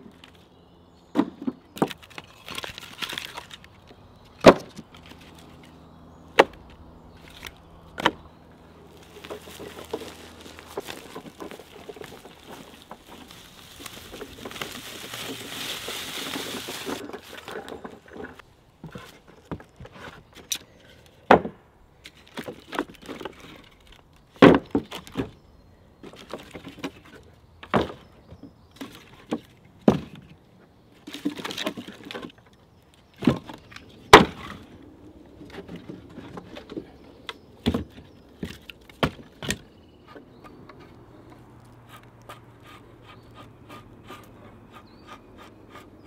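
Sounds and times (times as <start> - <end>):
hollow wooden knocks of logs: 4.4 - 5.2, 6.3 - 8.3, 21.3 - 21.6, 24.4 - 25.4, 26.0 - 30.4, 33.2 - 34.6, 35.4 - 42.8
steady rustling: 8.6 - 19.3
wood clattering: 8.9 - 20.2.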